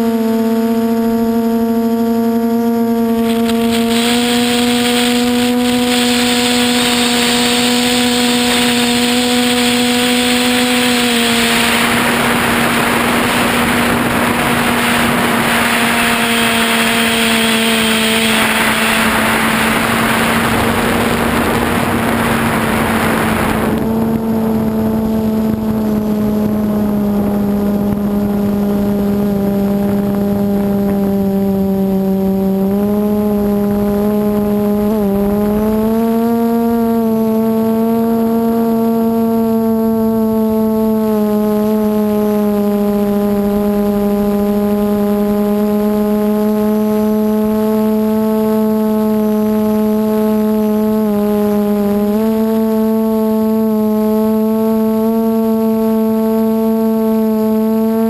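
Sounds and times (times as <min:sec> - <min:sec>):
quadcopter motors whining hum: 0:00.0 - 0:58.0
loud rushing noise: 0:03.2 - 0:24.0.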